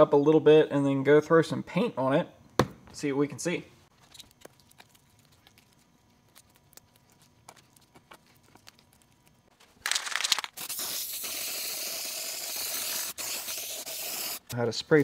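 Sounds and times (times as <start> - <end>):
faint small ticks and scrapes: 3.9 - 10.1
aerosol spray can hissing: 10.5 - 14.5.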